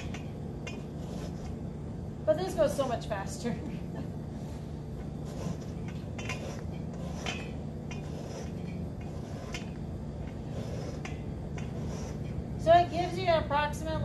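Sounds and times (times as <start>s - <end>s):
orange zest scraping on rasp: 0.0s - 1.6s, 5.2s - 13.3s
steady low hum: 0.0s - 14.0s.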